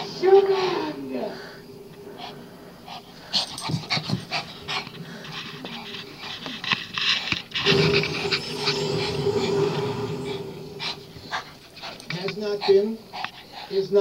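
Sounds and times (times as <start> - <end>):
small dog panting: 2.1 - 14.0.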